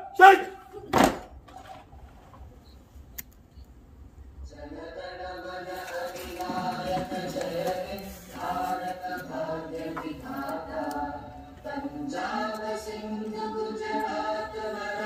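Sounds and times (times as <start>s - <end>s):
group of voices singing in unison: 4.4s - 15.0s.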